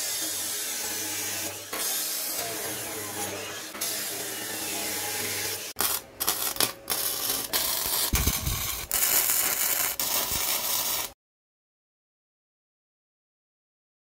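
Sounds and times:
cut-off saw grinding steel: 0:00.0 - 0:11.2
welding arc crackling: 0:00.0 - 0:11.2.

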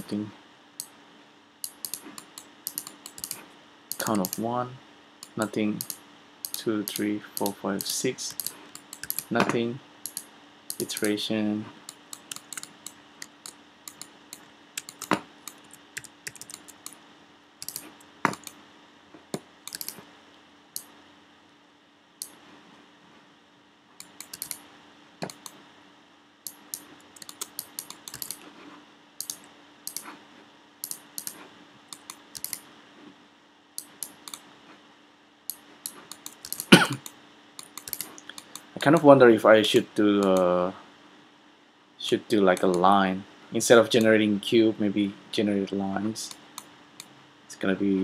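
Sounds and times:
faint steady hum: 0:00.0 - 0:48.0
keyboard and mouse clicking: 0:01.6 - 0:04.5, 0:05.2 - 0:11.2, 0:11.8 - 0:17.0, 0:17.6 - 0:18.6, 0:19.3 - 0:20.0, 0:24.0 - 0:24.6, 0:25.2 - 0:25.6, 0:26.5 - 0:28.4, 0:29.2 - 0:30.1, 0:30.8 - 0:32.6, 0:33.8 - 0:34.4, 0:35.5 - 0:38.7, 0:40.2 - 0:40.5, 0:42.5 - 0:42.8.

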